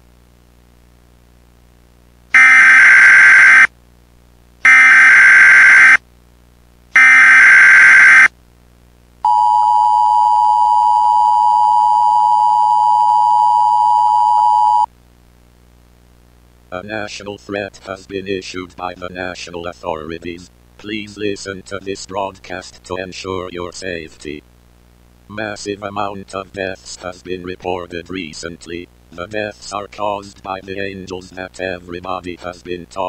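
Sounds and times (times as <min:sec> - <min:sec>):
screeching data header bursts: 0:02.4 - 0:03.7, 0:04.7 - 0:06.0, 0:07.0 - 0:08.3
two-tone attention signal: 0:02.4 - 0:03.7, 0:04.7 - 0:06.0, 0:07.0 - 0:08.3.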